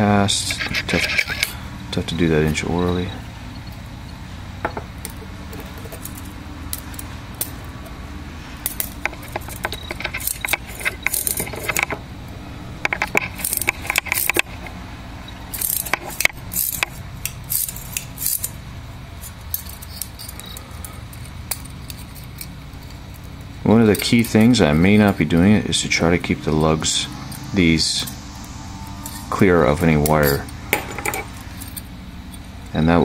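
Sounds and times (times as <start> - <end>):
metal wire clinking and scraping: 0.0 - 12.1, 12.8 - 32.9.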